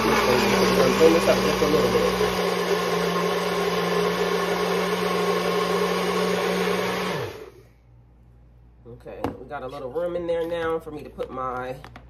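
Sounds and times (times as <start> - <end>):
blender running: 0.0 - 7.7.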